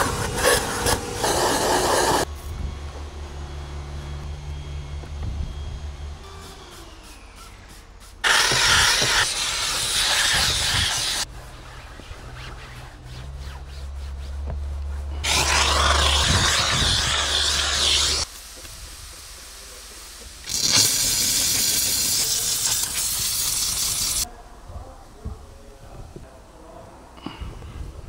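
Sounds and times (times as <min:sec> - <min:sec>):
steam cleaner nozzle hissing: 0:00.0 - 0:02.3, 0:07.0 - 0:11.3, 0:15.2 - 0:18.3, 0:20.4 - 0:24.3
low hum: 0:02.1 - 0:08.1.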